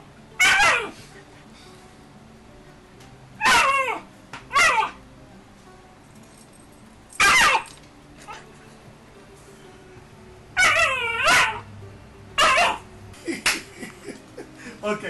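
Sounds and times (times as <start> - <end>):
puppy barking: 0.4 - 1.0, 3.4 - 5.0, 7.2 - 7.7, 10.6 - 11.7, 12.4 - 12.8.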